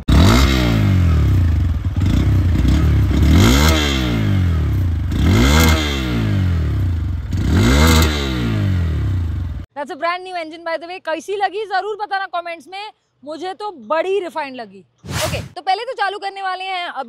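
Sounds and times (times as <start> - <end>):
motorcycle engine revving: 0.0 - 9.7.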